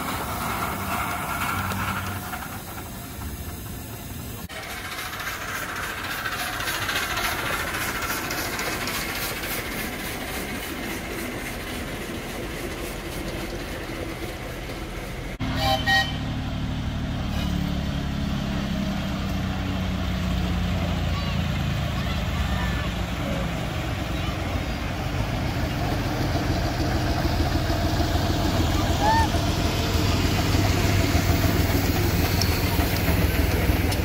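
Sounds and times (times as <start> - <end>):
miniature train rolling with ticking: 0.0 - 15.9, 20.1 - 34.0
low engine drone: 0.0 - 34.0
train toot: 15.4 - 16.4.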